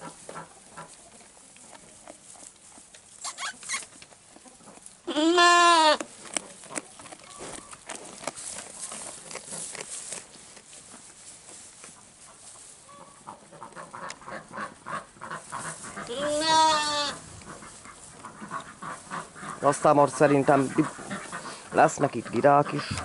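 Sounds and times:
sheep crunching hay: 0.0 - 23.0
sheep bleating: 5.1 - 6.0, 16.0 - 17.3.

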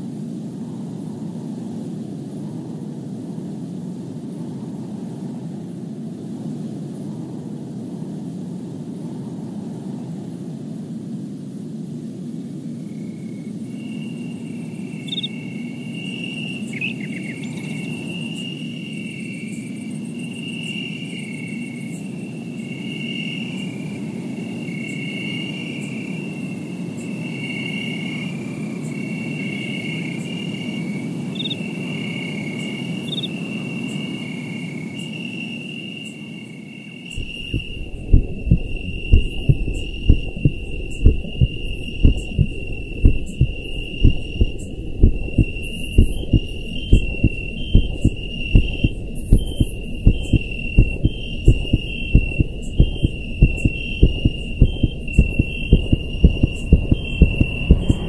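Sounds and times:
insects chirping: 12.8 - 58.0
deep heavy thumps: 37.2 - 58.0
low rumbling: 37.2 - 58.0.

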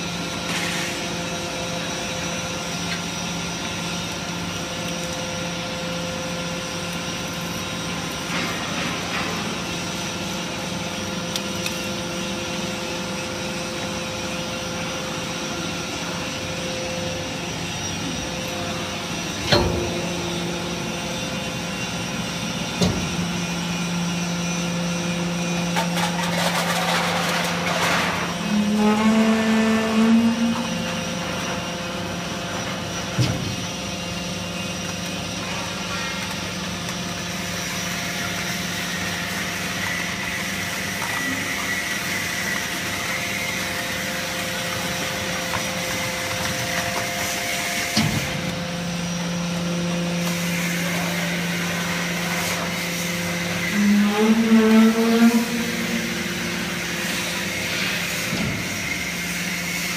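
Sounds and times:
hydraulic press motor humming: 0.0 - 59.9.

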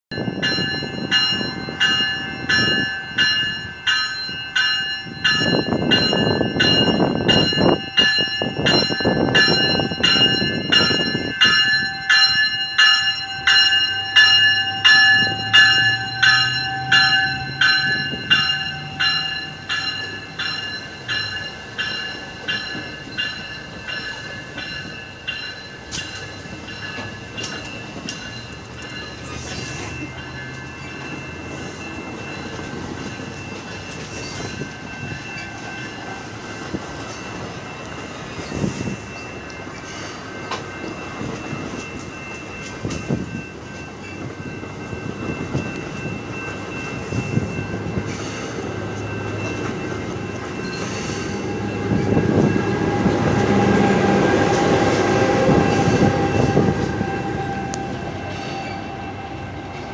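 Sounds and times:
train rumbling past: 0.1 - 59.9
warning bell ringing: 0.1 - 59.9.

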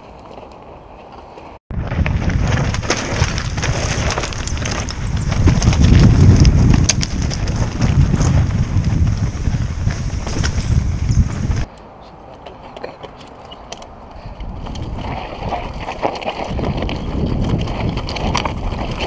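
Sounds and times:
bike rattling: 0.0 - 11.7, 12.4 - 19.0
tyres crunching over stones: 0.0 - 11.7, 12.4 - 19.0
wind rumble on microphone: 1.7 - 11.7, 14.2 - 19.0.

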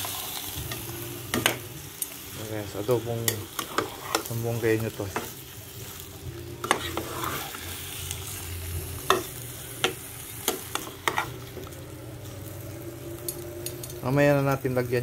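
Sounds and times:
faint sizzle: 0.0 - 15.0
spatula stirring in pot: 3.6 - 4.3, 6.6 - 7.7.

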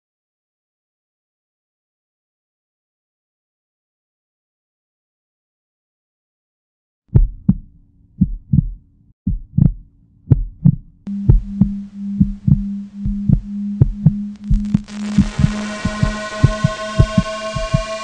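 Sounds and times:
heartbeat thumps: 7.1 - 17.9
steady low hum: 10.9 - 18.0.

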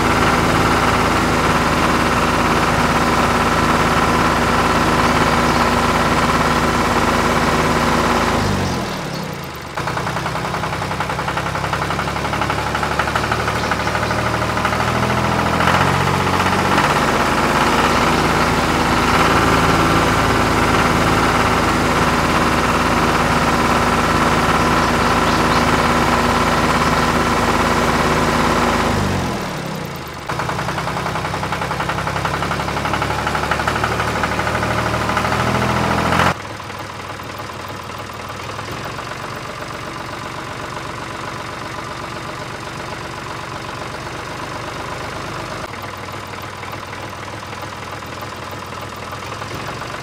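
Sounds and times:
toy tractor engine idling: 0.0 - 50.0.

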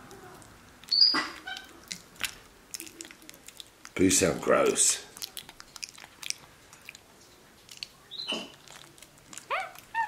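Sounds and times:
monkey chewing wetly: 0.1 - 10.0
monkey high squeak: 0.9 - 1.7.

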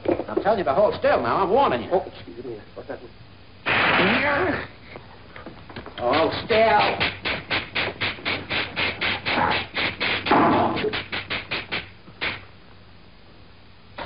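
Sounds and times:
faint soundtrack hiss: 0.0 - 14.0
sharp slapstick hits: 6.1 - 12.4.

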